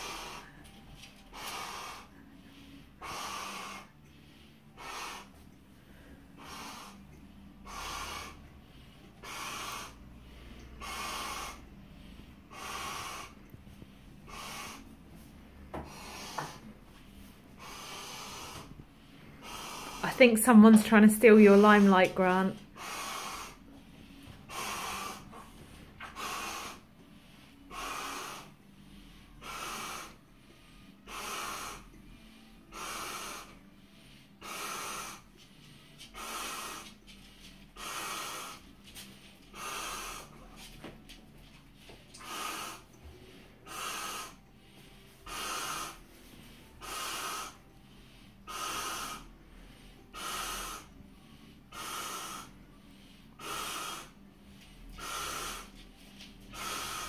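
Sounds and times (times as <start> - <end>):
man blowing up a balloon: 0.0 - 4.0, 4.6 - 5.4, 6.4 - 13.6, 14.2 - 18.8, 19.4 - 20.8, 22.6 - 26.9, 27.5 - 28.6, 29.3 - 33.7, 34.3 - 35.3, 36.0 - 37.1, 37.7 - 38.7, 39.4 - 40.7, 42.1 - 44.5, 45.2 - 47.7, 48.4 - 49.4, 50.0 - 51.0, 51.6 - 52.6, 53.3 - 54.2, 54.9 - 55.8, 56.5 - 57.0
heavy noisy breaths: 0.0 - 57.0.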